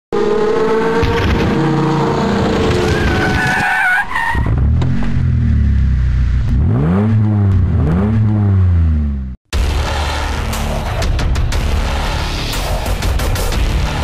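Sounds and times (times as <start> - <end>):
tyres squealing in a skid: 2.8 - 4.5.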